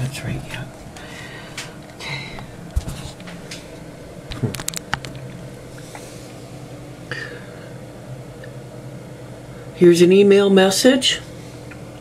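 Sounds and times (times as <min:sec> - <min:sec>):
steady low hum: 0:00.0 - 0:12.0
sharp clicks and knocks: 0:04.3 - 0:05.2.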